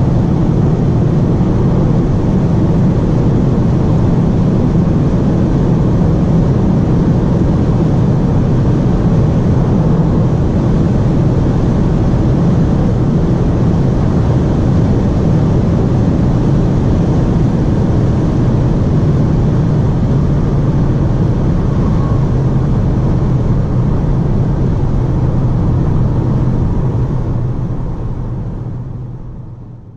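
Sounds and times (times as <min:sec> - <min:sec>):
low engine drone: 0:00.0 - 0:29.9
wind and tyre roar in car: 0:00.0 - 0:29.9.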